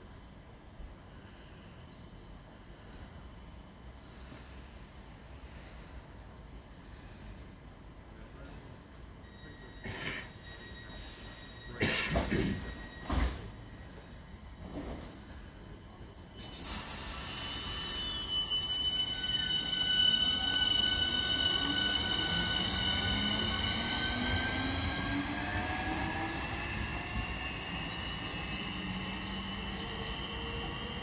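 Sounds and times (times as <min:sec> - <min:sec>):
electric train traction motors whining: 0:15.6 - 0:31.0.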